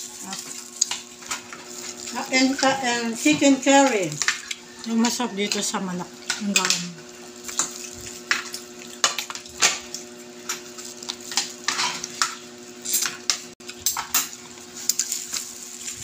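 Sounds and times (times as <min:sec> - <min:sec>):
chewing and lip smacks: 0:04.2 - 0:05.0.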